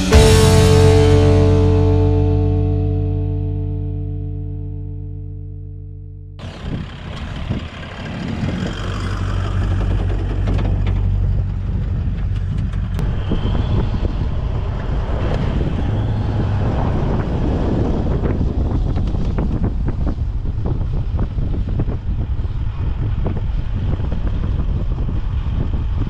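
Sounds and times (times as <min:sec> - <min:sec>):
held music chord: 0:00.0 - 0:06.5
vehicle engine and tyres on sand: 0:06.4 - 0:26.0
wind buffeting microphone: 0:06.4 - 0:26.0.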